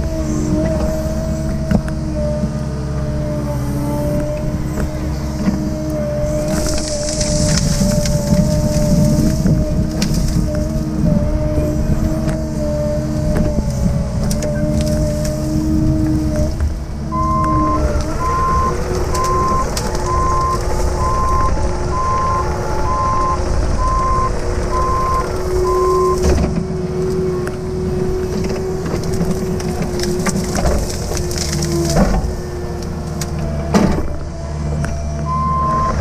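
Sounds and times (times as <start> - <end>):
excavator diesel engine under load: 0.0 - 36.0
brush cracking and snapping: 4.2 - 11.0, 12.1 - 22.9, 24.6 - 35.3
alarm beep: 17.2 - 26.2.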